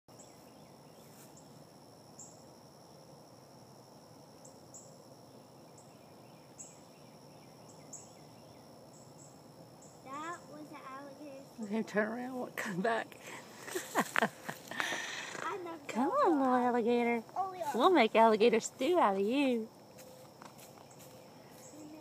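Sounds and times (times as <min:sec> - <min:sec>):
high-pitched insect drone: 0:07.9 - 0:22.0.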